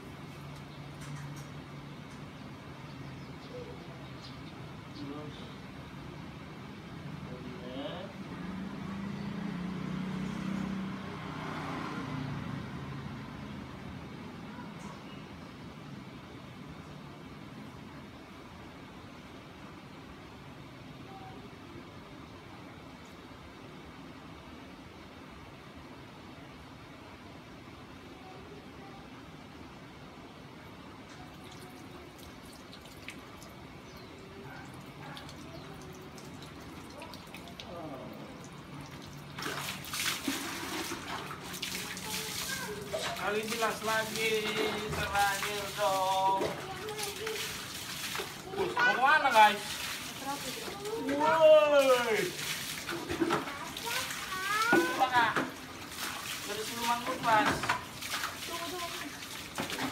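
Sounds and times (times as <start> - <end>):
vehicle passing by: 6.9 - 14.7
water dripping: 31.1 - 34.1, 34.7 - 59.9.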